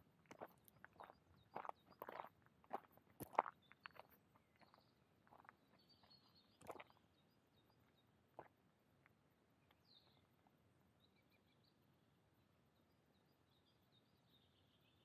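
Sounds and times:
soft footsteps on forest path: 0.0s - 8.6s
faint birds chirping: 0.0s - 15.0s.

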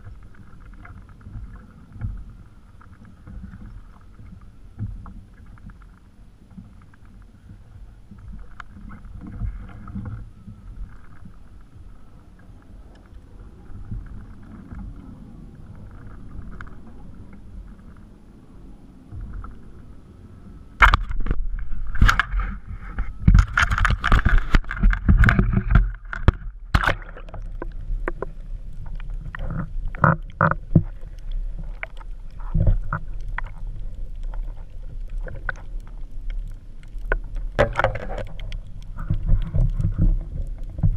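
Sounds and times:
muffled underwater rumble: 0.0s - 40.9s
waves lapping on kayak hull: 0.0s - 40.9s
splashing: 20.8s - 40.9s.

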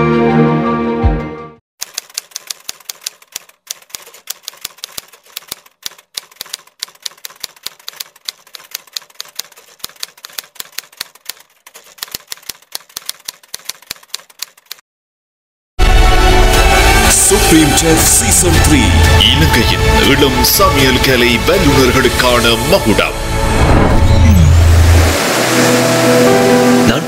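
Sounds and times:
typing clicks: 1.8s - 14.8s.

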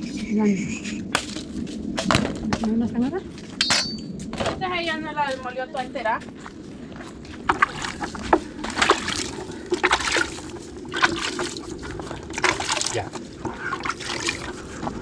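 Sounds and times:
water splashing in a plastic bucket: 7.3s - 15.0s.

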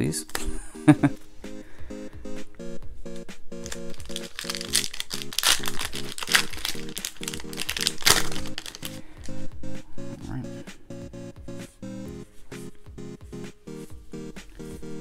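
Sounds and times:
eight-bit background music: 0.0s - 15.0s
foil wrapper crinkling: 3.6s - 9.0s.

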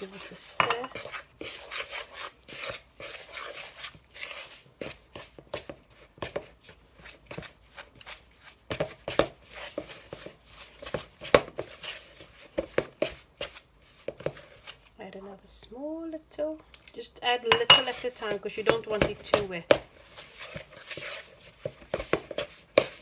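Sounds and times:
metal spoon scraping plastic bowl: 0.0s - 4.6s.

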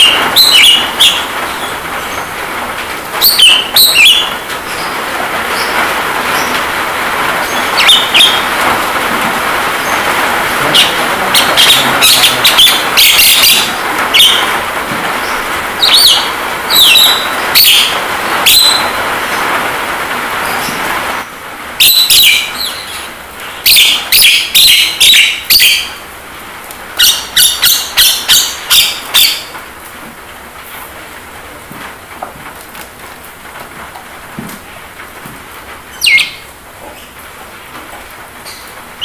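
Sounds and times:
bird harsh scratchy calls: 0.0s - 2.4s, 3.2s - 19.6s, 20.4s - 26.0s, 27.0s - 29.6s, 35.9s - 37.2s
rain hiss: 0.0s - 39.0s.

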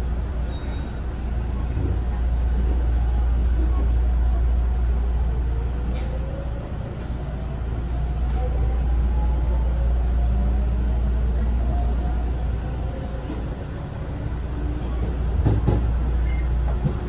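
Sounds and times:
train wheels rumbling: 10.3s - 17.0s.

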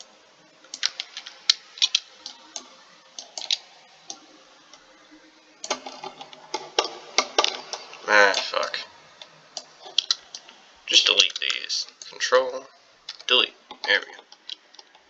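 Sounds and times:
computer mouse clicks: 0.7s - 4.8s
keyboard clicks: 13.1s - 15.0s.

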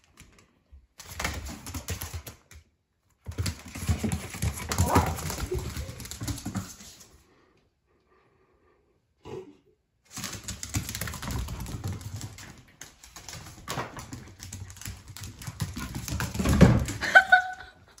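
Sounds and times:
dog claws clicking on hard floor: 0.0s - 7.1s, 10.1s - 17.2s.

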